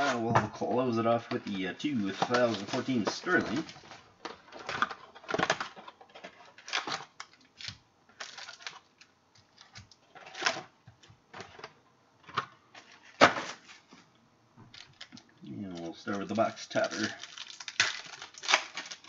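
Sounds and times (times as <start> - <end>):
card pack crinkling and tearing: 1.3 - 10.7, 14.7 - 19.0.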